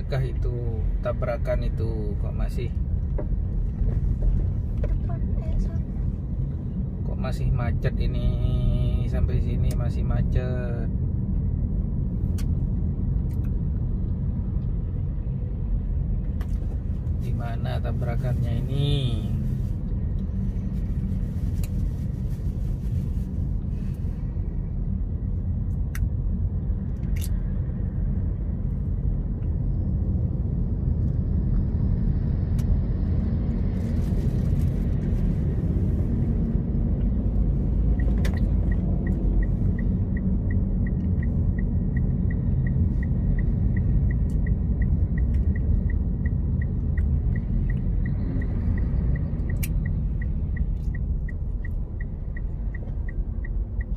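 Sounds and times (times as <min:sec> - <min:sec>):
car engine and tyres rumbling: 0:00.0 - 0:53.9
regular light ticking: 0:37.9 - 0:53.9.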